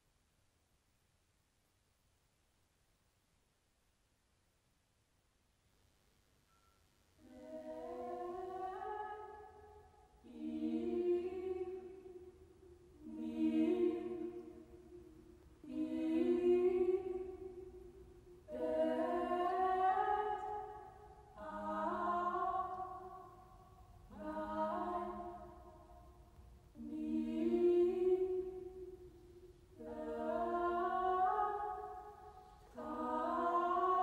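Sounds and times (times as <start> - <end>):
voices singing sustained chords: 7.2 - 34.0.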